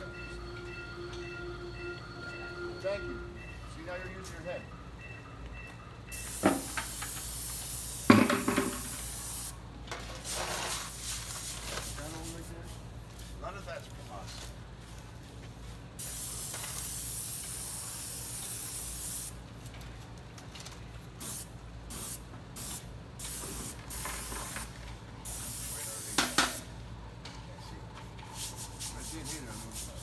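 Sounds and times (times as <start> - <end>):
paint sprayer hissing: 6.2 - 9.6, 16.0 - 19.4, 21.2 - 26.7, 28.4 - 30.0.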